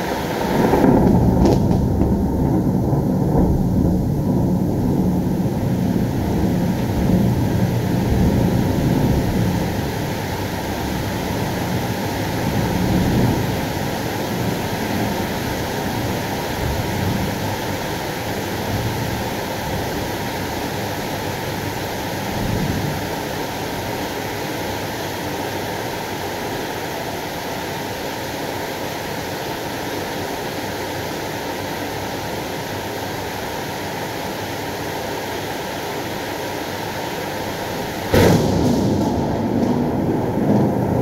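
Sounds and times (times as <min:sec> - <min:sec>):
low thunder rumbling: 0:00.0 - 0:24.2, 0:37.6 - 0:41.0
heavy rain pouring: 0:00.0 - 0:41.0.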